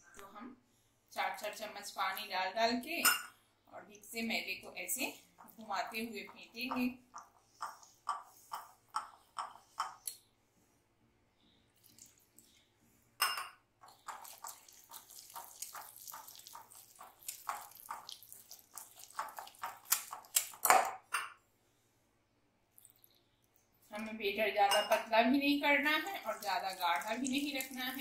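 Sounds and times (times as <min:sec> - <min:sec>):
whisk beating batter in glass bowl: 0:13.8 - 0:20.8, 0:25.8 - 0:28.0.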